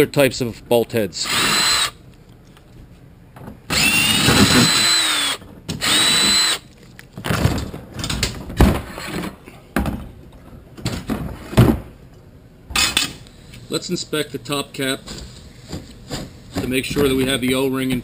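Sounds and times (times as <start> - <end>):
cordless drill motor whine: 1.2 - 2.0, 3.7 - 6.6.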